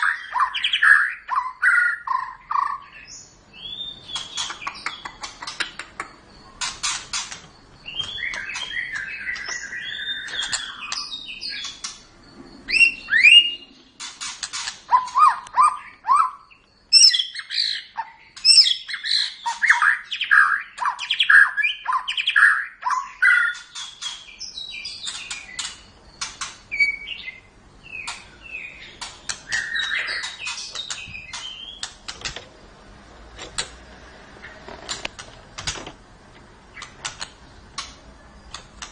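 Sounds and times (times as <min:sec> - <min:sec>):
bird singing varied whistling song: 0:07.8 - 0:11.9, 0:12.6 - 0:13.8, 0:26.7 - 0:31.9.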